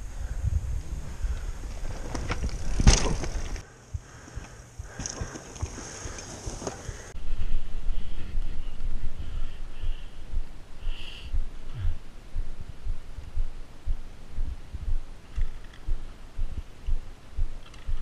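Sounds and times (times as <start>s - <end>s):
bike tyres crunching on dirt: 0.0s - 7.2s.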